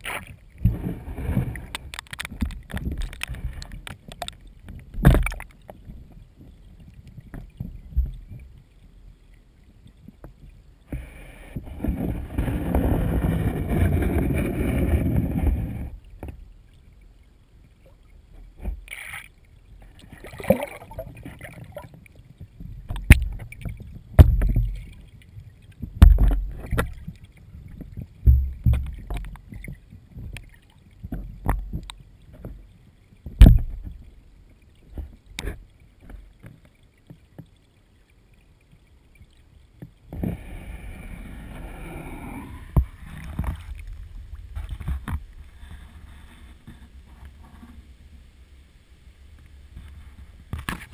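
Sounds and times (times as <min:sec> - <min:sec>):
muffled underwater knocks and thumps: 0:00.0 - 0:08.6, 0:09.8 - 0:16.5, 0:18.3 - 0:18.9, 0:19.8 - 0:34.2, 0:34.8 - 0:37.6, 0:42.6 - 0:47.8, 0:49.4 - 0:50.9
churning rushing water: 0:18.5 - 0:37.0, 0:39.1 - 0:48.2.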